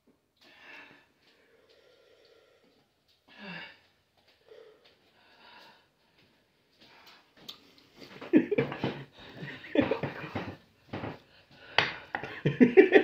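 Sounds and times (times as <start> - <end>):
man breathing heavily: 0.4 - 7.4, 8.7 - 12.3
man laughing in bursts: 8.2 - 10.5, 12.2 - 13.0.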